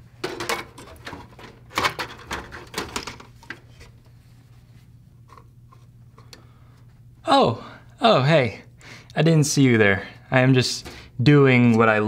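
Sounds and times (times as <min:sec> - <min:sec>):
clicks and clattering in metal case: 0:00.2 - 0:03.6.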